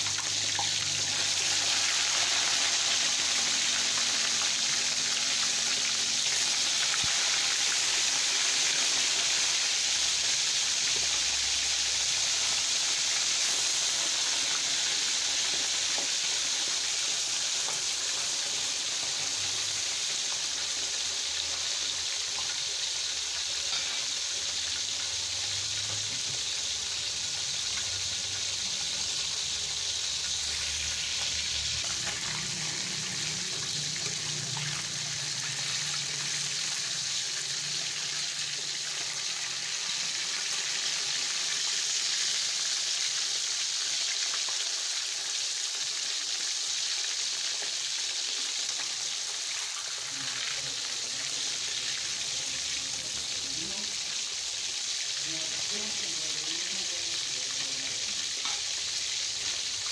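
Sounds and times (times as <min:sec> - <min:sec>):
fish sizzling in hot oil: 0:00.0 - 0:59.9.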